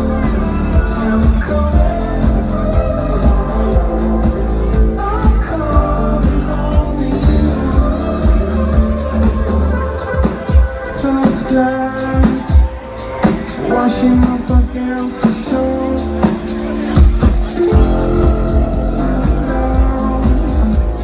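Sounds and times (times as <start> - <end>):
electronic dance music with singing: 0.0 - 21.0.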